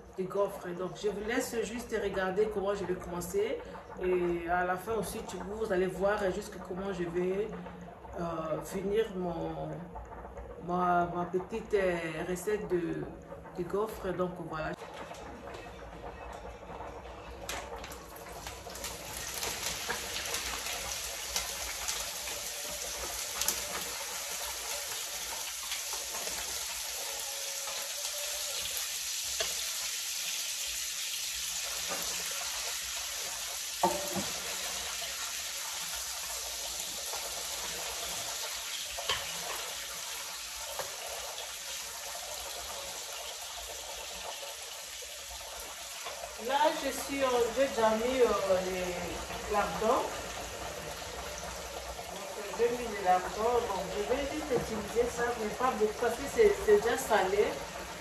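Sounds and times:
bacon sizzling in frying pan: 14.6s - 58.0s
spatula knocking against pan: 33.8s - 34.3s.

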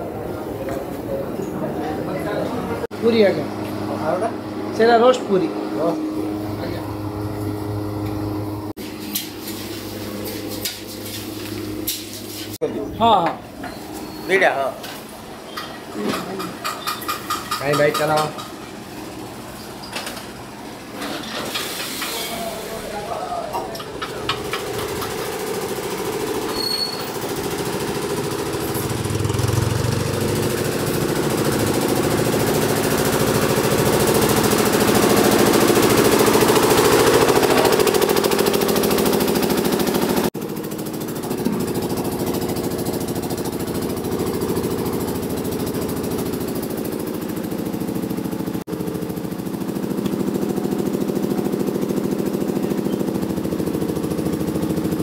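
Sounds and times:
small engine running steadily: 2.8s - 8.7s, 23.8s - 55.0s.

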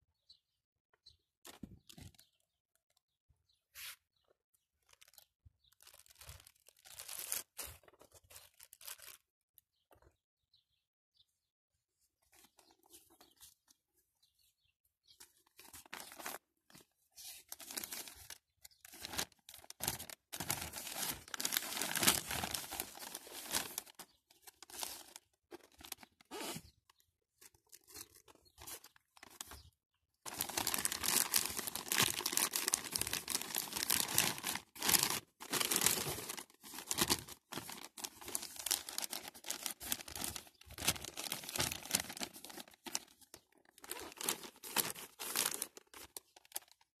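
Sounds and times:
dry soil rustling and crunching: 4.8s - 9.3s, 15.2s - 26.8s, 30.3s - 46.8s.

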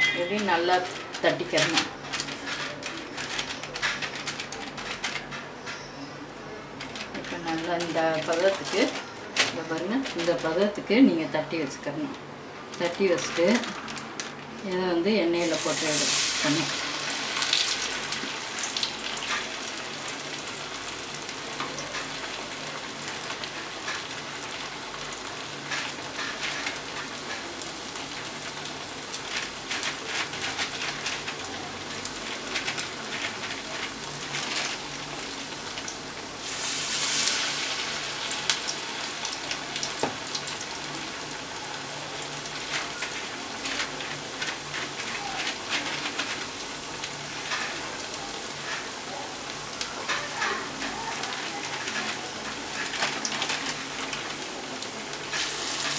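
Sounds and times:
food sizzling in hot oil: 15.3s - 55.9s.

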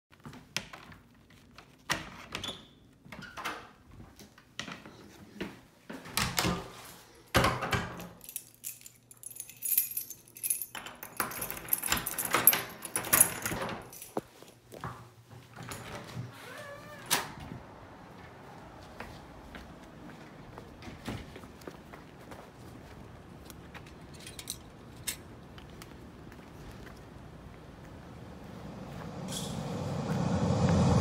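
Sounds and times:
keys jangling: 7.8s - 14.6s, 23.8s - 25.3s.

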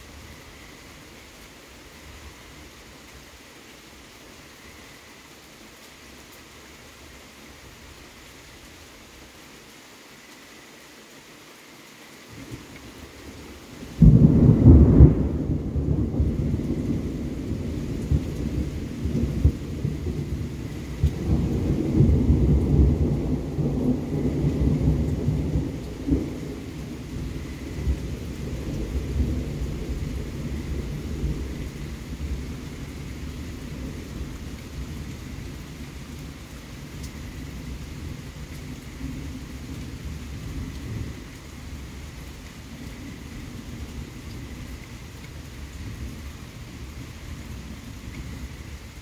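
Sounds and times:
low thunder rumbling: 13.4s - 48.8s.

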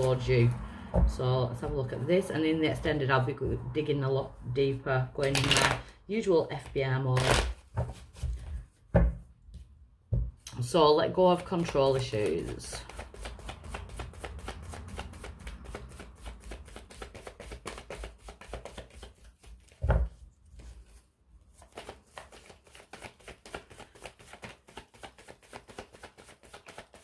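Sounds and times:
cards being shuffled: 5.2s - 5.9s, 6.5s - 8.7s, 11.3s - 27.0s.

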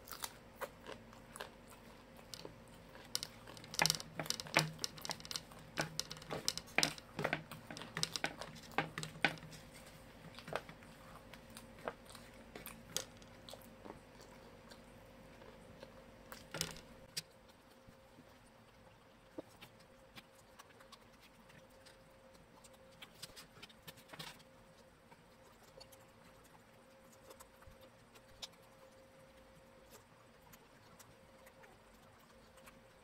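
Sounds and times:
crunchy chewing: 0.0s - 33.0s
fingers picking food off metal plate: 2.1s - 13.5s.

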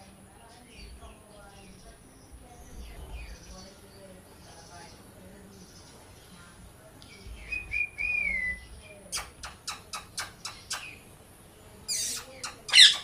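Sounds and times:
parakeet whistling: 7.5s - 8.7s, 11.9s - 13.0s
parakeet chirps: 7.5s - 11.1s, 11.9s - 13.0s
parakeet screeching: 11.9s - 13.0s.

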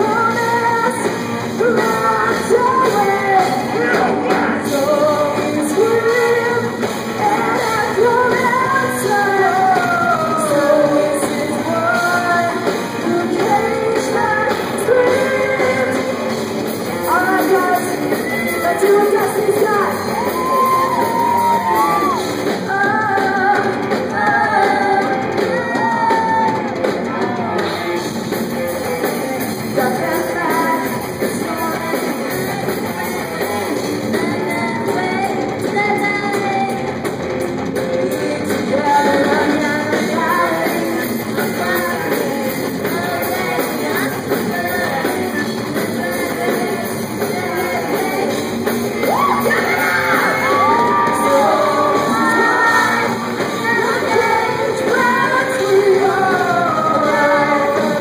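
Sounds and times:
people singing: 0.0s - 16.3s, 17.0s - 26.6s, 38.0s - 58.0s
live rock band playing: 0.0s - 58.0s.

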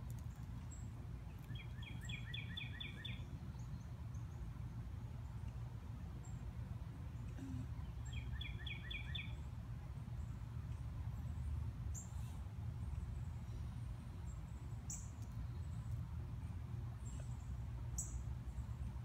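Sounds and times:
bird chirping: 0.1s - 4.5s, 7.2s - 9.5s.

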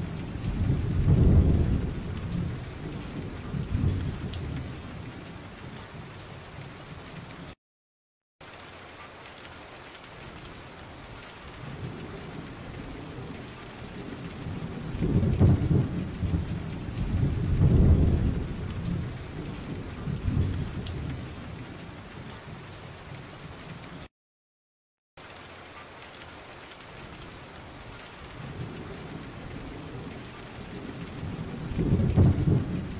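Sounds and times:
rolling thunder: 0.0s - 7.5s, 11.0s - 23.9s, 27.8s - 32.9s
steady rain: 0.0s - 7.6s, 8.4s - 24.1s, 25.2s - 32.9s.

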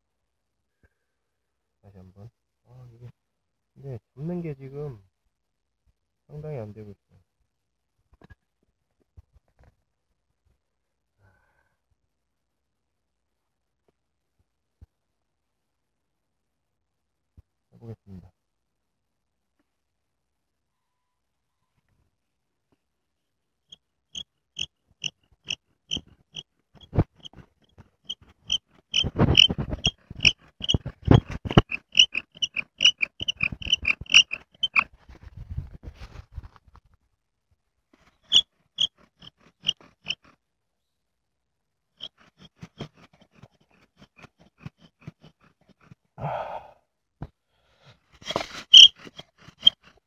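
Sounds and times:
breathy exhale: 11.2s - 11.8s, 46.2s - 46.9s
bow drill squeaking and rubbing: 24.6s - 35.2s, 38.0s - 40.4s, 42.0s - 46.0s, 48.2s - 50.0s.

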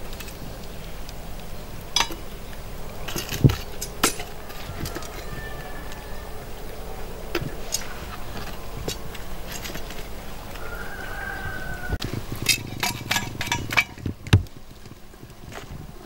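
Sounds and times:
wood fire crackling: 0.0s - 16.0s
sharp pops and clicks: 12.0s - 15.7s.

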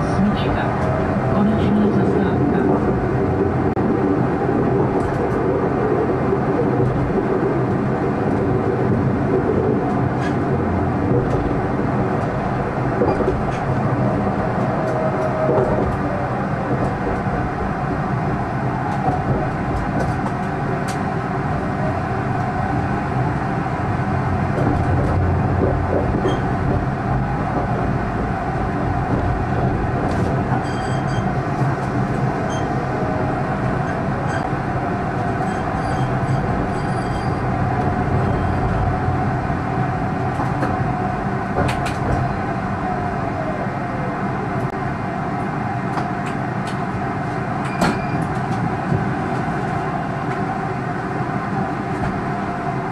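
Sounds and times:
tram wheels and motors rumbling: 0.0s - 52.9s
faint wheel squeal: 35.4s - 37.5s.

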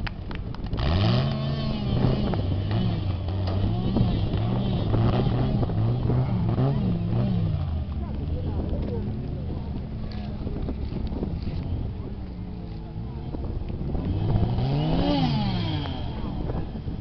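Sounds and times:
off-road vehicle engine revving: 0.6s - 17.0s.

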